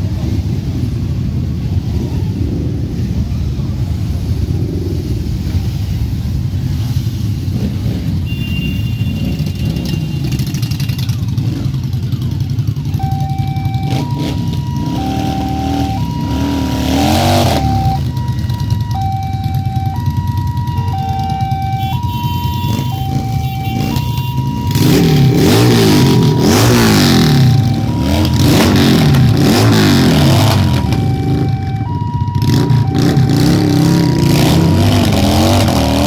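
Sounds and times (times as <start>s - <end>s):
motorcycle engines revving: 0.0s - 36.0s
two-tone siren: 12.9s - 36.0s.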